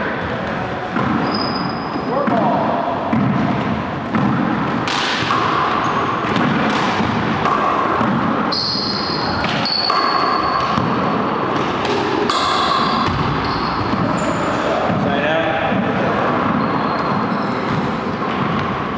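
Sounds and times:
sneakers squeaking on wooden floor: 0:00.2 - 0:02.6, 0:05.7 - 0:06.5, 0:08.4 - 0:11.0, 0:12.3 - 0:15.0, 0:16.3 - 0:18.9.

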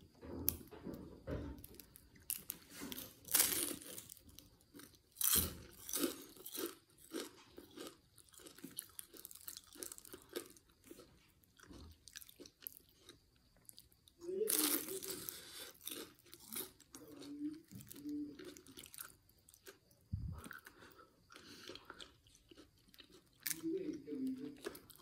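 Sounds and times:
crunching bites into fried snack: 0:01.6 - 0:17.0
close-up chewing: 0:02.1 - 0:25.0.

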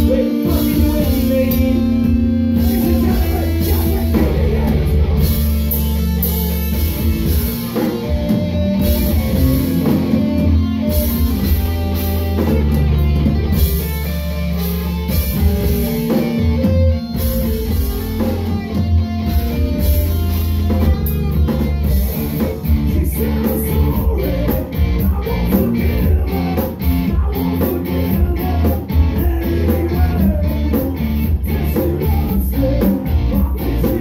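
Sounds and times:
man singing into microphone: 0:00.0 - 0:05.3, 0:22.0 - 0:34.0
live rock band playing: 0:00.0 - 0:34.0.

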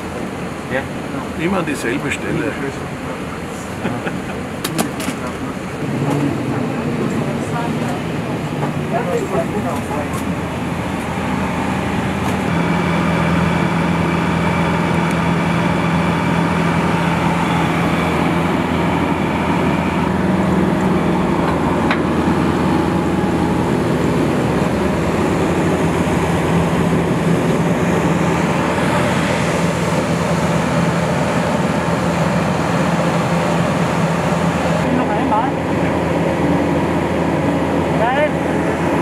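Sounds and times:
machinery low hum: 0:00.0 - 0:39.0
high whining tones: 0:08.6 - 0:39.0.

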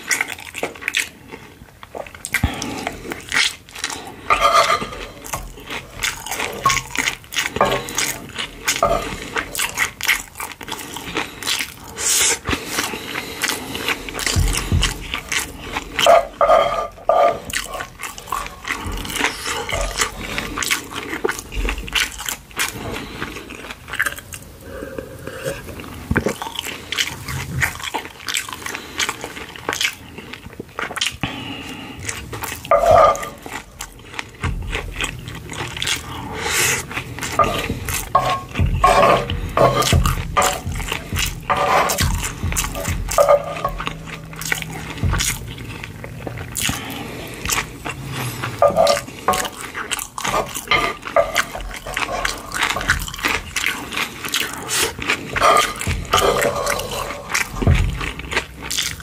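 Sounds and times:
close chewing and mouth noises: 0:00.0 - 0:59.0
wooden spoon scraping pan: 0:04.3 - 0:10.0, 0:13.8 - 0:20.5, 0:32.7 - 0:46.4, 0:47.1 - 0:49.6, 0:50.3 - 0:53.6, 0:55.3 - 0:58.6.

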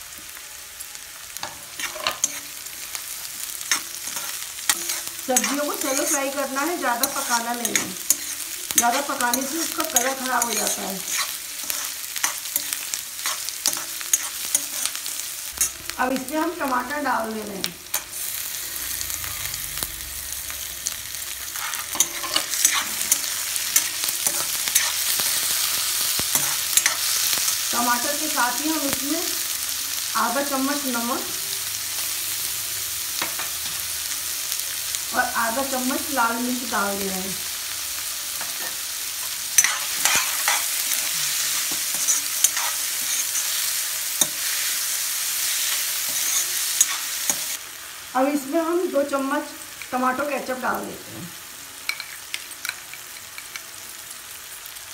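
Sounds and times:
vegetables sizzling in hot oil: 0:00.0 - 0:54.9
steel spoon clinking and scraping pan: 0:01.4 - 0:02.9, 0:03.6 - 0:15.8, 0:21.5 - 0:27.6, 0:38.4 - 0:44.9, 0:45.6 - 0:47.6, 0:51.9 - 0:53.7.

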